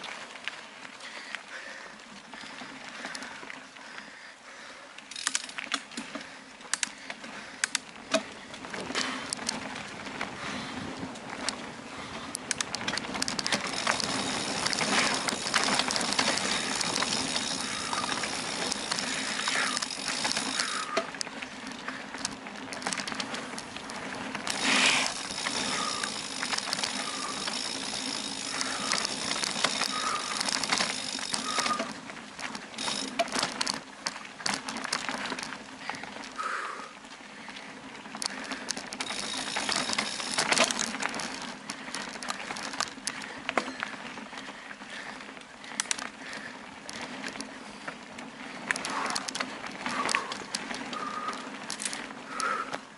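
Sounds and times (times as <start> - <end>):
bike rattling over bumps: 0.0 - 52.9
tyres rolling over stones: 12.4 - 36.4, 37.8 - 44.3.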